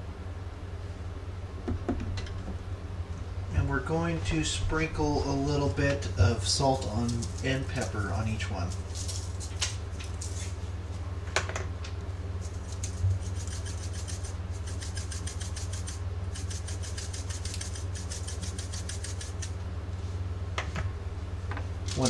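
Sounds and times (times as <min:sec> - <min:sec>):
steady low hum: 0:00.0 - 0:22.0
scattered ticks: 0:12.7 - 0:19.5.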